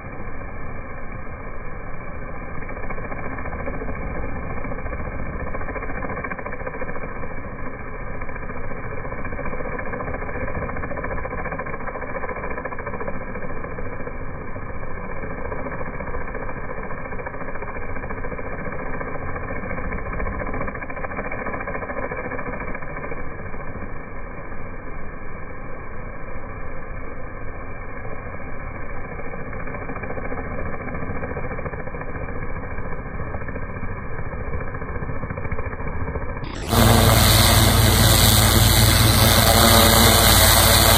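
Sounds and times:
pressure washer engine drone: 0.0 - 40.9
high-pressure spray on asphalt: 36.5 - 40.9.

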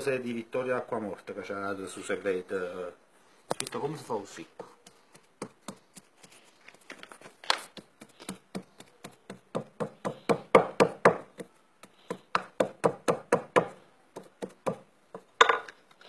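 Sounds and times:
pestle pounding in a pot: 4.6 - 5.9, 8.0 - 15.3.

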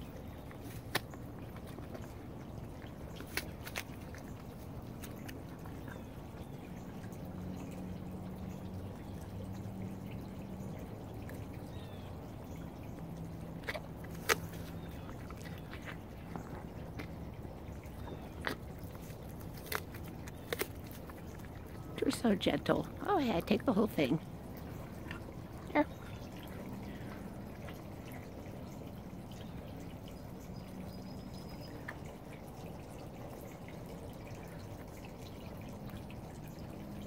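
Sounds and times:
deer chewing with wet mouth sounds: 0.0 - 37.0
sharp apple crunches: 0.6 - 1.1, 13.6 - 15.9, 18.4 - 21.4.

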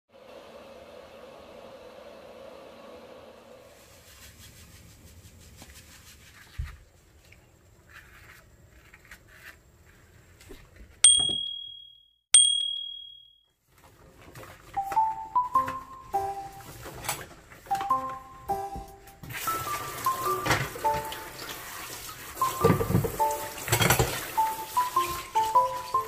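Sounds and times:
brush scrubbing metal sink: 3.6 - 10.4, 19.2 - 26.0
bell-like dings: 11.0 - 13.4.

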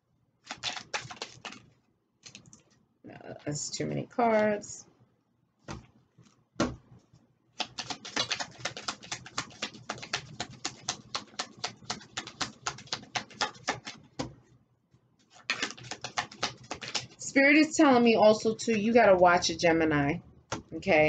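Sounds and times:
cards being shuffled: 0.4 - 2.8, 7.6 - 14.3, 15.2 - 17.2
cards tapping: 0.5 - 1.6, 7.6 - 14.4, 15.4 - 17.2.

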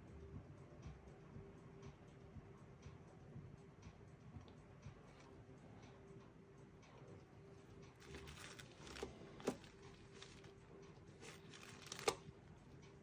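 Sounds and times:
faint steady hum: 0.0 - 13.0
soft rustling: 8.0 - 12.2.

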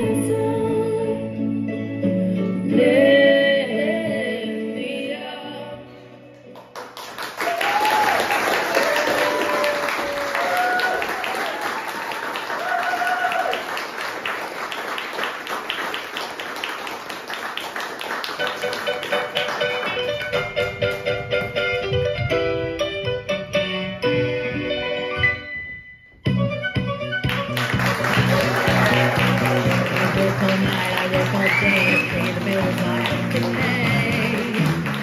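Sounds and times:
recorded song with singing: 0.0 - 6.4, 28.9 - 35.0
applause: 6.6 - 21.0, 27.2 - 35.0.

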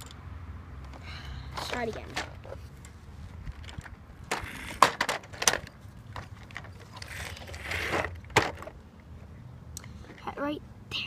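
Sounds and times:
plastic toy clicks and knocks: 3.5 - 8.8.

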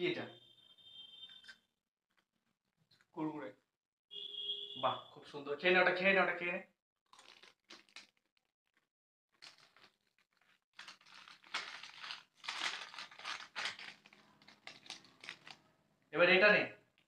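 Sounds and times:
plastic snack packet crinkling: 7.1 - 15.6.

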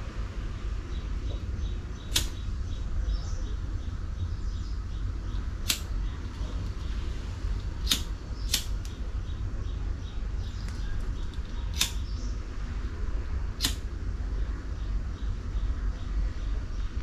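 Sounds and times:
steady low hum: 0.0 - 17.0
sharp clicks: 2.0 - 2.8, 5.4 - 7.0, 7.6 - 9.1, 10.4 - 12.3, 13.6 - 13.9.

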